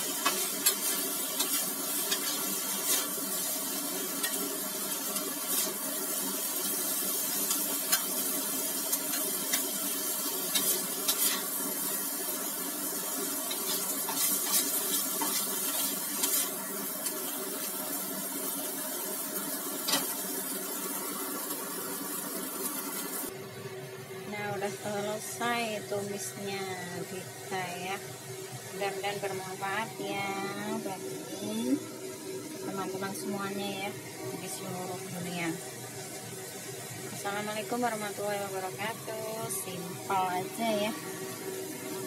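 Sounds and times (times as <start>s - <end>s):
food sizzling in a wok: 0.0s - 42.0s
metal spatula scraping pan: 0.1s - 3.2s, 10.5s - 11.5s, 13.5s - 16.6s.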